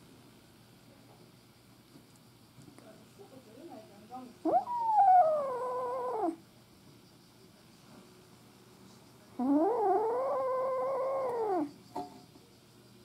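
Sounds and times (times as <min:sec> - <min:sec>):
kitten meowing: 0:04.5 - 0:06.4, 0:09.4 - 0:11.7.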